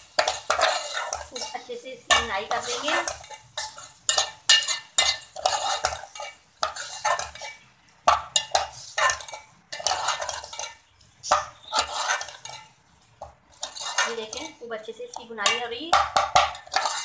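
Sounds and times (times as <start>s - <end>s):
metal spoon scraping a pot: 0.0s - 12.8s, 13.5s - 17.0s.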